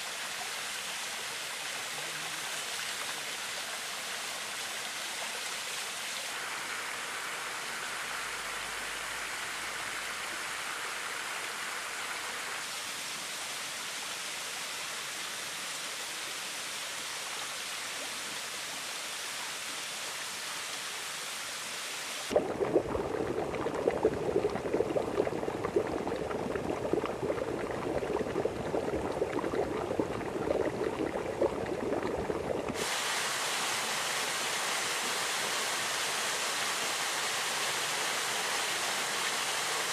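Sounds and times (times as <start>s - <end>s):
waterfall falling into pool: 0.0s - 22.8s, 32.7s - 39.9s
water splashing: 22.3s - 35.5s
water rushing over rock: 22.3s - 39.9s.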